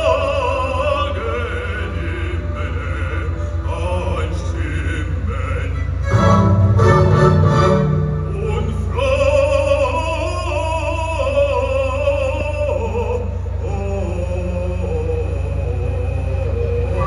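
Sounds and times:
operatic singer: 0:00.0 - 0:17.0
loud orchestral chord: 0:01.3 - 0:10.4
instrumental accompaniment: 0:05.7 - 0:09.4.

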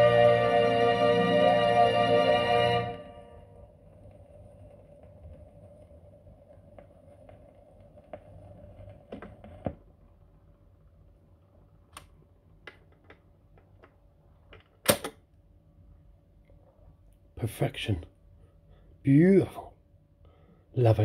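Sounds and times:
record player hum: 0:00.0 - 0:17.4.

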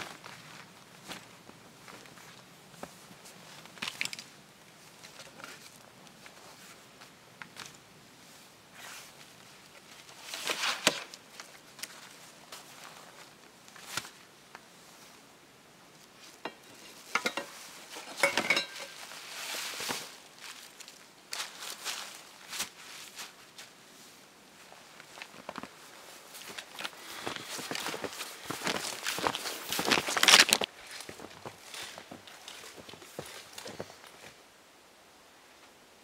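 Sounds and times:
dishes clinking: 0:16.5 - 0:19.0
nylon sacks rustling: 0:17.7 - 0:34.3.

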